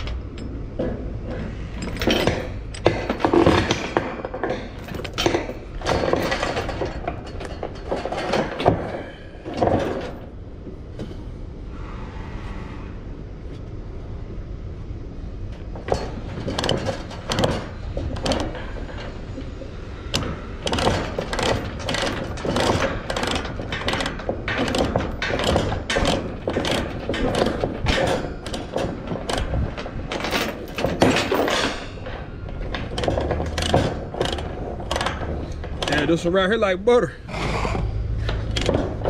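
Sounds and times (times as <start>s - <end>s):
chain links clanking: 0.0s - 10.4s, 15.6s - 36.4s.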